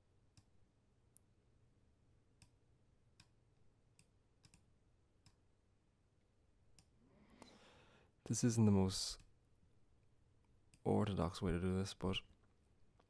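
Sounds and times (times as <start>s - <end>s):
faint mouse clicks: 0.3s - 0.5s, 3.2s - 5.4s, 6.7s - 7.6s.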